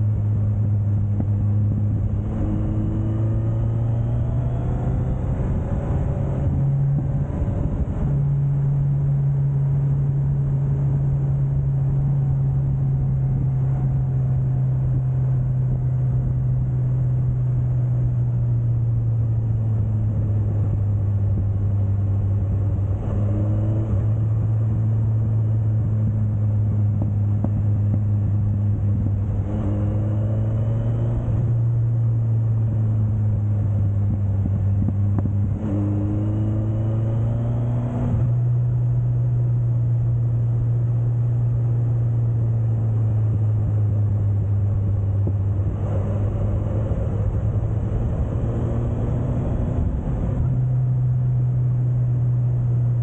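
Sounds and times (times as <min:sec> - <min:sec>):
road and wind noise: 0:00.0 - 0:53.0
motorcycle engine running: 0:24.0 - 0:30.1, 0:31.5 - 0:36.7.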